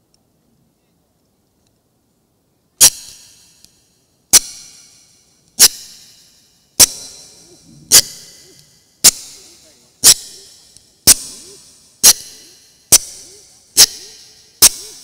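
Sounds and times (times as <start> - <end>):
sharp metallic strikes ringing: 4.4 - 15.0.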